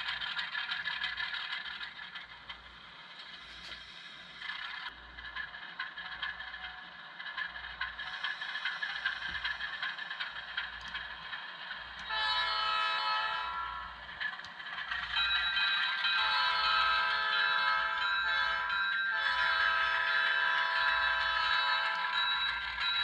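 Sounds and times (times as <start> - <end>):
light clatter: 0.0 - 12.0
model locomotive diesel engine: 0.0 - 23.0.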